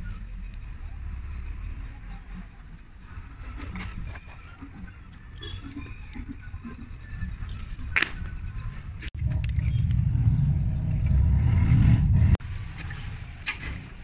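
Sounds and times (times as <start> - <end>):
steel chain links clinking: 0.0 - 8.8
low rumble: 5.2 - 13.4.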